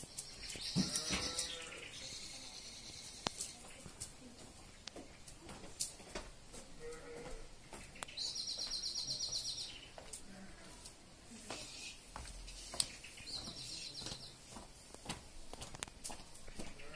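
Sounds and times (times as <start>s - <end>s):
nightingale singing: 0.0s - 3.9s, 7.8s - 10.1s, 11.6s - 14.5s.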